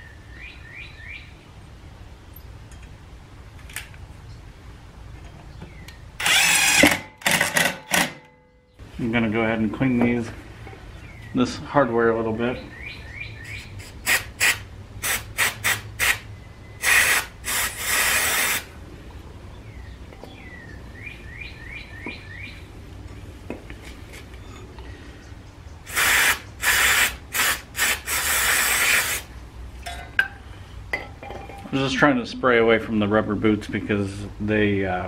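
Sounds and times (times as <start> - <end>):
aerosol spray hissing: 16.8 - 18.7, 25.9 - 29.3.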